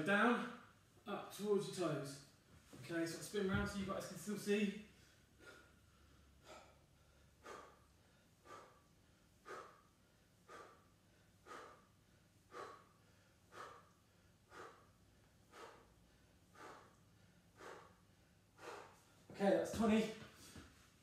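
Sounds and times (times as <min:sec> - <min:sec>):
man breathing forcefully: 0:04.8 - 0:19.3.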